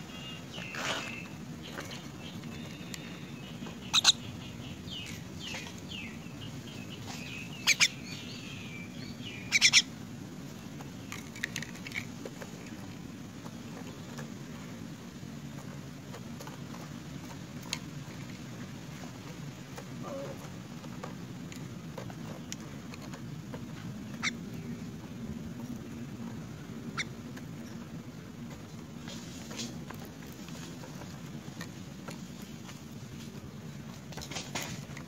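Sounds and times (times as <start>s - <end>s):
faint bird chirps: 0.0s - 9.9s
steady low hum: 0.0s - 35.0s.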